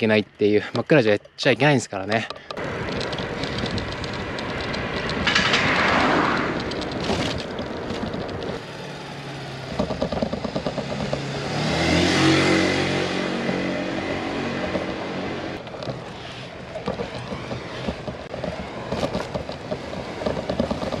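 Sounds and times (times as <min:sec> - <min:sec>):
bicycle clattering over road: 0:02.1 - 0:08.7, 0:09.6 - 0:12.3, 0:15.6 - 0:21.0
car passing: 0:02.6 - 0:09.8, 0:10.8 - 0:21.0.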